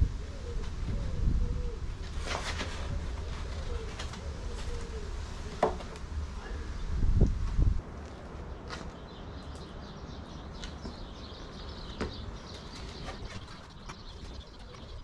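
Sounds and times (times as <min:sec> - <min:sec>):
wind buffeting microphone: 0:00.0 - 0:05.4, 0:06.1 - 0:08.0
small birds chirping: 0:08.0 - 0:15.0.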